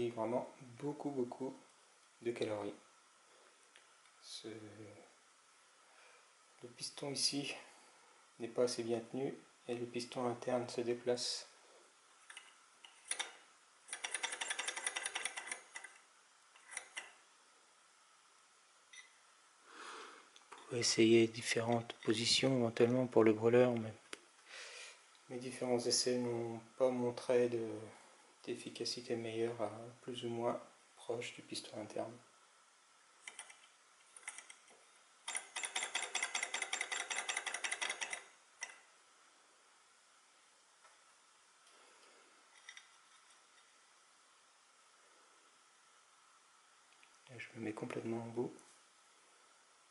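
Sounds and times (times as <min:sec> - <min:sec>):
flywheel clicks: 0:13.1 - 0:15.9, 0:35.3 - 0:38.8.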